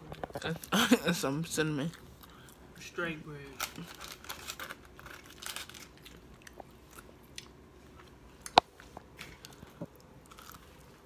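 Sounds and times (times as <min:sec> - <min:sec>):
person chewing bread: 0:01.7 - 0:02.8, 0:03.6 - 0:11.0.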